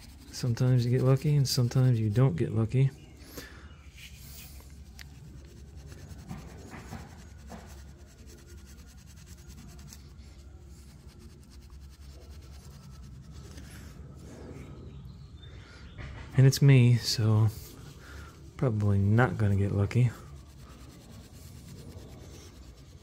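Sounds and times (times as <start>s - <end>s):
steel wool scrubbing metal: 0.0s - 2.3s, 19.0s - 23.0s.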